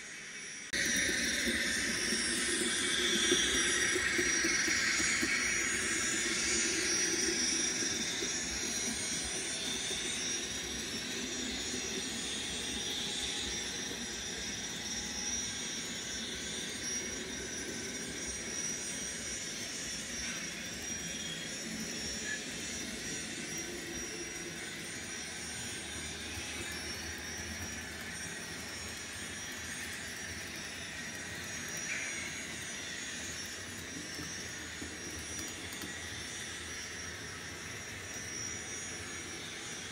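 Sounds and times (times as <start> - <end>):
model locomotive turbine whine: 0.0 - 39.9.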